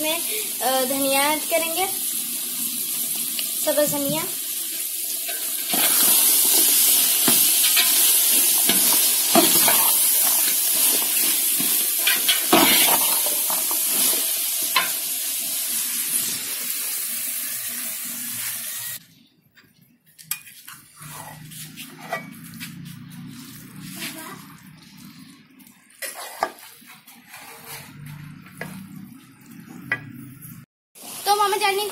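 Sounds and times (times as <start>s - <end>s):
food sizzling in a pan: 0.0s - 19.0s, 20.6s - 31.9s
utensil scraping a pan: 5.3s - 14.1s, 21.0s - 24.2s, 26.0s - 28.9s.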